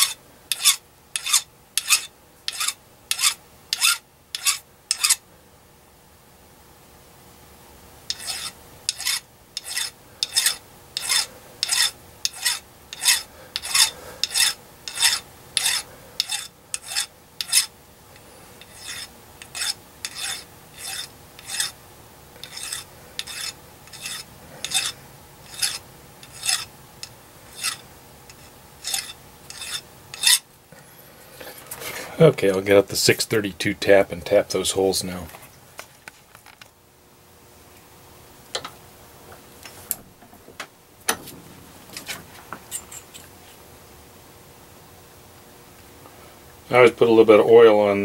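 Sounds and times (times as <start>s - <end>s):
hand file scraping metal: 0.0s - 5.2s, 8.1s - 17.7s, 18.6s - 21.8s, 22.4s - 30.4s.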